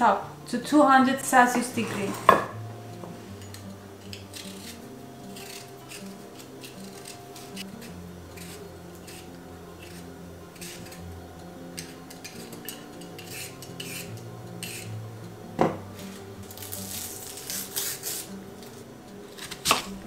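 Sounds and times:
soft background music: 0:00.0 - 0:20.0
vegetable peeler scraping: 0:03.4 - 0:15.0, 0:16.0 - 0:20.0.

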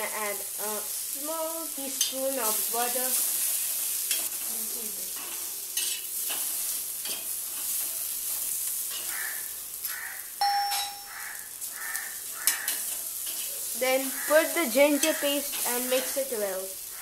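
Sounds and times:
vegetables sizzling in oil: 0:00.0 - 0:17.0
short metallic ding: 0:10.4 - 0:11.2
spatula scraping pan: 0:11.1 - 0:16.3.

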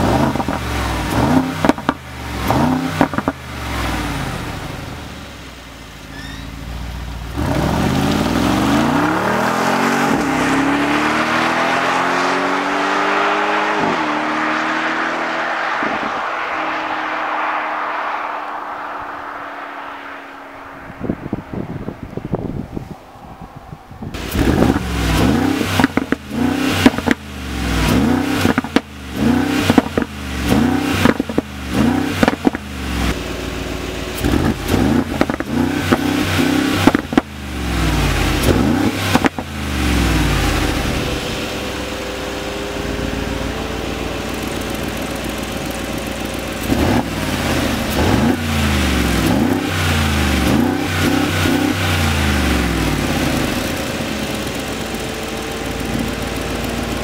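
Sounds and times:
car engine idling: 0:00.0 - 0:11.6, 0:15.2 - 0:57.0
car engine revving: 0:00.0 - 0:57.0
exhaust cracks: 0:15.4 - 0:57.0.

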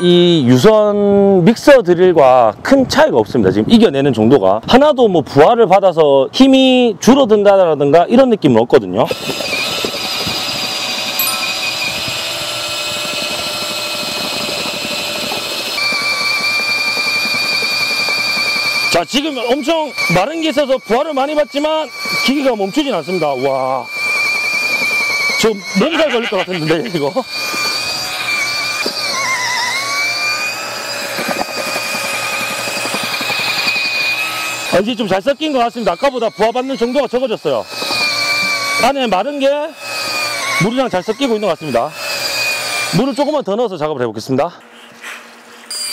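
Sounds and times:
mixer drill churning mortar: 0:09.0 - 0:43.9.

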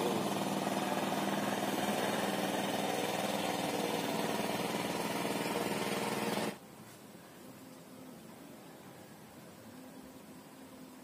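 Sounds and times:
small engine running steadily: 0:00.0 - 0:06.6.

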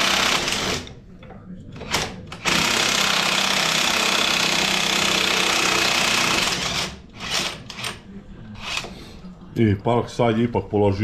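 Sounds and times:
impact wrench hammering: 0:00.0 - 0:00.9, 0:01.8 - 0:07.9.

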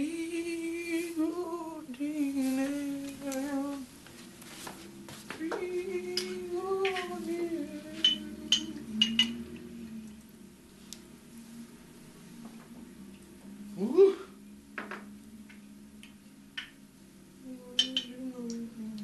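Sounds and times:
person humming: 0:00.0 - 0:03.9, 0:05.4 - 0:10.3, 0:13.6 - 0:14.5, 0:17.4 - 0:19.0
glass clinks: 0:08.0 - 0:09.4, 0:17.8 - 0:18.2.

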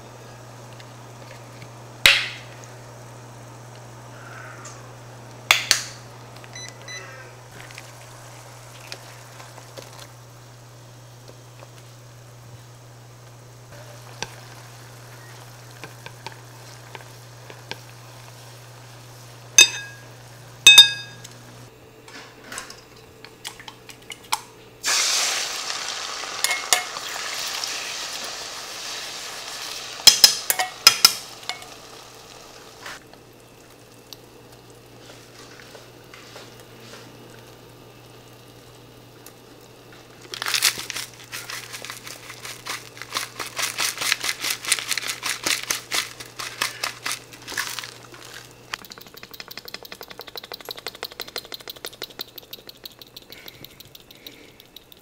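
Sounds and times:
egg sizzling in hot oil: 0:07.5 - 0:11.9, 0:13.6 - 0:21.2, 0:24.8 - 0:36.7
utensils clinking against pan: 0:19.6 - 0:20.1, 0:20.7 - 0:21.3, 0:26.4 - 0:27.0, 0:30.1 - 0:31.8
rapid light tapping: 0:48.7 - 0:55.0
sauce stirred with chopsticks: 0:48.8 - 0:55.0.

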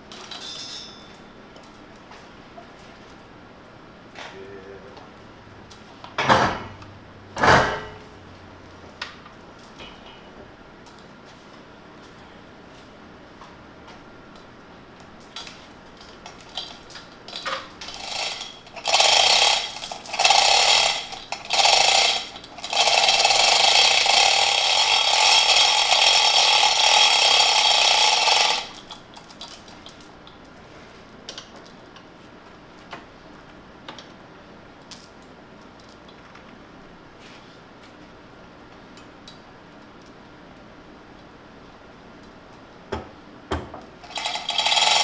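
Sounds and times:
chain hauled through hoist: 0:17.9 - 0:29.0, 0:44.0 - 0:45.0.

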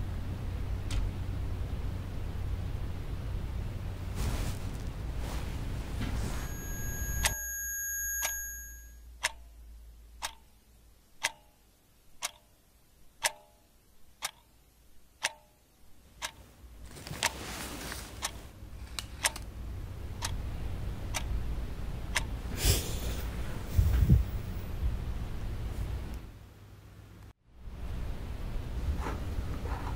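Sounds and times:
rustle: 0:04.0 - 0:06.8, 0:16.8 - 0:18.5
brief high tone: 0:06.2 - 0:09.0
clock ticking: 0:09.2 - 0:10.6, 0:11.2 - 0:16.5, 0:18.2 - 0:18.4, 0:19.2 - 0:19.4, 0:20.1 - 0:20.5, 0:21.1 - 0:21.4, 0:22.1 - 0:22.4.

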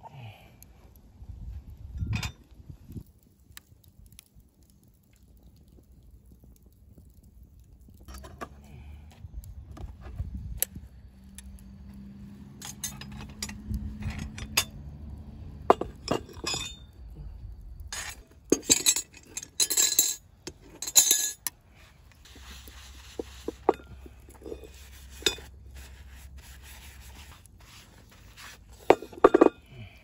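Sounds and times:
cast iron lid clinking: 0:15.6 - 0:16.8, 0:18.0 - 0:21.5, 0:28.8 - 0:29.6.

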